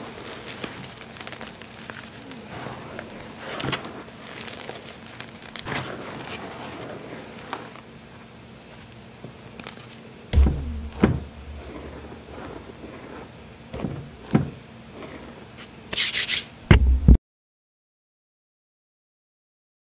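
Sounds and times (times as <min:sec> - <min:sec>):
heavy thumps: 0:10.4 - 0:12.8, 0:13.8 - 0:14.6, 0:16.7 - 0:17.2.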